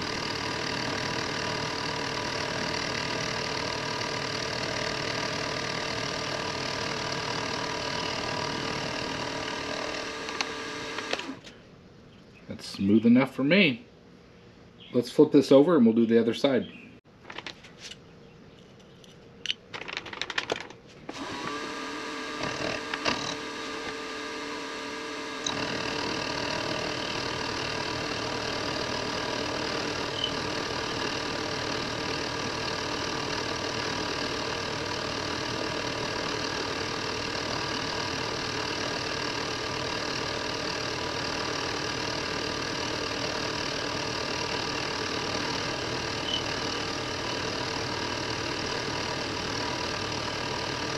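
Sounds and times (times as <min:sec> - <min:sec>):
milling machine motor humming: 0:00.0 - 0:11.5, 0:21.1 - 0:50.9.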